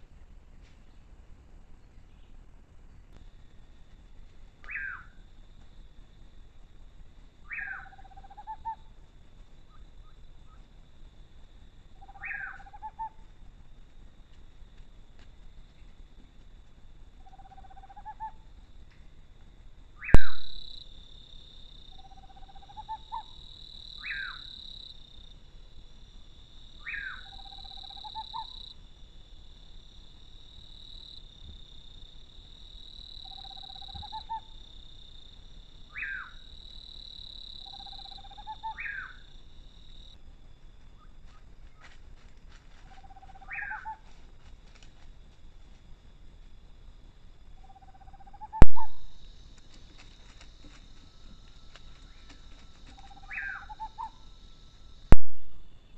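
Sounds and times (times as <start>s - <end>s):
animal calling: 4.6s - 5.2s, 7.5s - 8.9s, 12.0s - 13.3s, 21.9s - 23.4s, 24.0s - 24.6s, 26.8s - 28.7s, 33.2s - 34.6s, 35.9s - 36.5s, 37.6s - 39.3s, 42.8s - 44.1s, 52.0s - 54.2s.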